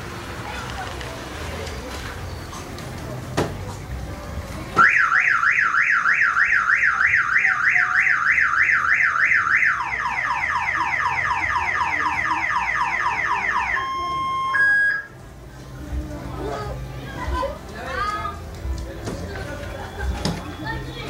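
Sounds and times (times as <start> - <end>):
car alarm siren: 4.8 - 15.1.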